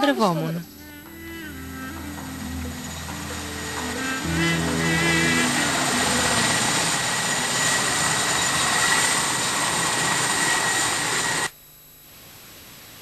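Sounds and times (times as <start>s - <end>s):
faint high whine: 0.0s - 13.0s
loud rushing noise: 1.4s - 11.5s.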